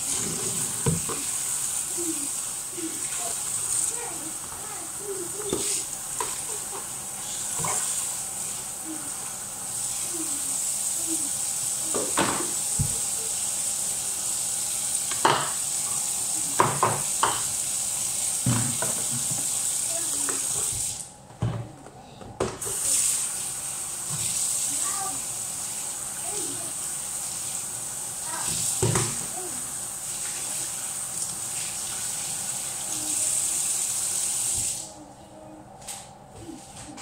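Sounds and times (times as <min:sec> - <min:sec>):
dishes knocking and clattering: 0:11.9 - 0:13.0, 0:15.1 - 0:15.6, 0:16.6 - 0:17.6, 0:18.4 - 0:19.5.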